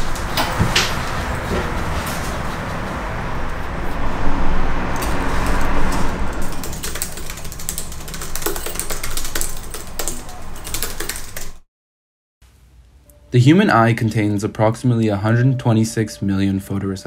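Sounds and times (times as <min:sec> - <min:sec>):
keyboard typing clicks: 0:06.4 - 0:11.6.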